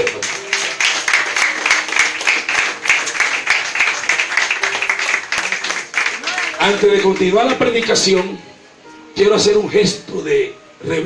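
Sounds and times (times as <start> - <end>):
congregation applauding: 0.0 - 8.4.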